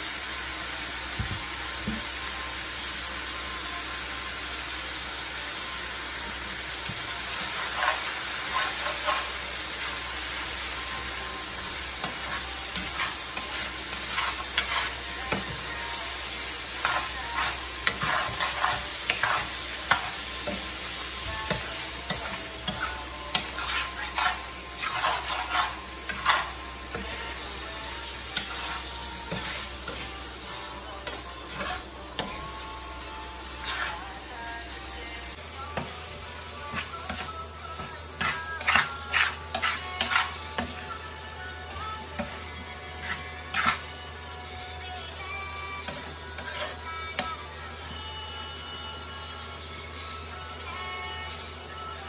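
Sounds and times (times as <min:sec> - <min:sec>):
meat sizzling in a skillet: 0:00.0 - 0:52.0
metal spoon scraping a pan: 0:07.4 - 0:10.0, 0:11.6 - 0:15.7, 0:16.6 - 0:32.6, 0:33.5 - 0:34.2, 0:36.5 - 0:41.0, 0:41.7 - 0:43.9, 0:45.8 - 0:47.4.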